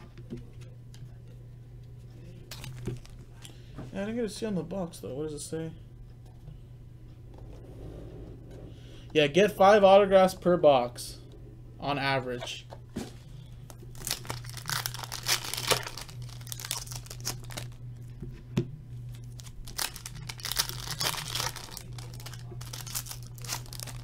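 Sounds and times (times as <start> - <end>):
foil wrappers tearing and crinkling: 2.5 - 3.2, 13.8 - 17.8, 19.1 - 24.0.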